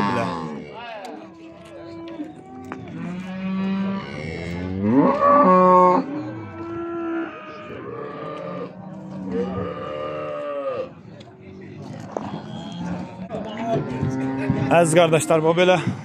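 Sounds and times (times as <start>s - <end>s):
cattle mooing: 0.0s - 11.0s.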